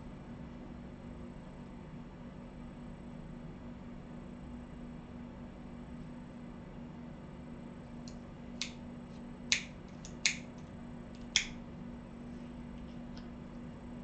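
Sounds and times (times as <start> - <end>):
low electrical hum: 0.0 - 14.0
sharp short clicks: 9.5 - 10.6.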